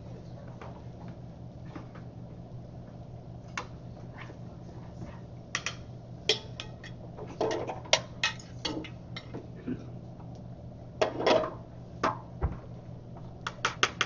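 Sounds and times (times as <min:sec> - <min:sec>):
steady low hum: 0:00.0 - 0:14.0
metal pots and pans clinking: 0:05.6 - 0:09.3.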